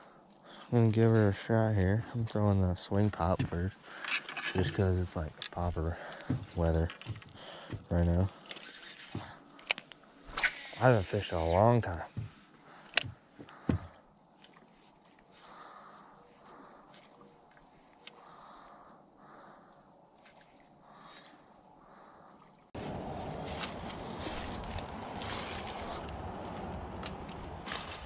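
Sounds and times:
insects chirring: 0.0 - 28.0
rustling in reeds and grass: 22.8 - 28.0.

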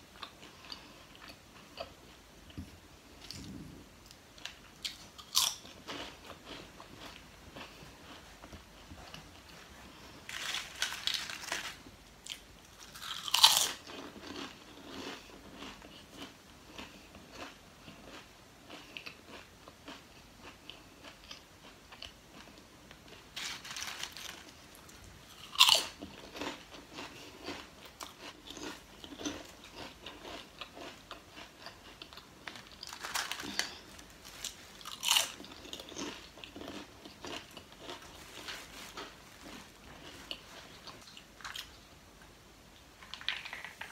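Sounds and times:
chips being chewed: 3.2 - 41.8, 43.0 - 43.9
chips rustling: 9.4 - 15.7, 23.1 - 27.6, 32.4 - 41.8, 43.0 - 43.9.

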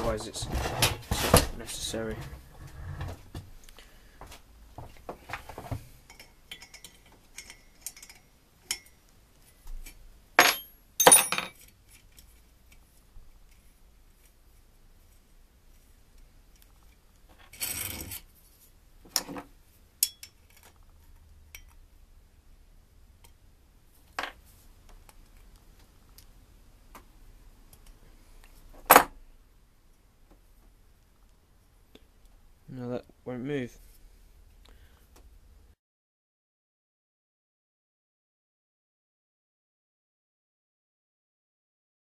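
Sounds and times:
metal tools clattering: 6.1 - 9.0, 10.4 - 11.7
small metallic clinks and clicks: 6.1 - 9.0, 20.0 - 20.9, 21.5 - 21.8.

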